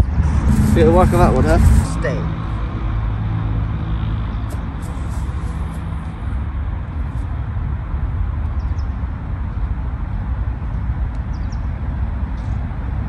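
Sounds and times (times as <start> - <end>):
low background rumble: 0.0 - 8.3.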